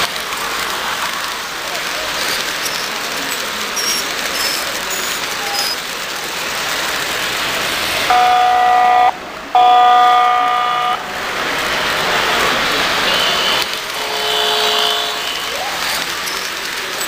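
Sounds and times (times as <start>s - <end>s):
model trains rolling on track: 0.0s - 17.0s
model train horn blasts: 8.1s - 11.0s, 13.1s - 15.6s.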